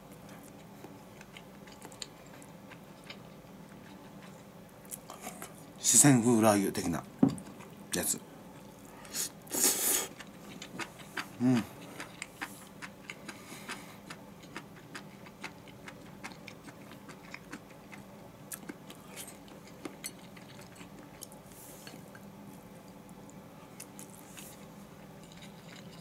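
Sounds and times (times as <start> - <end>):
person chewing: 0.2 - 5.3, 8.7 - 21.5, 23.7 - 26.0.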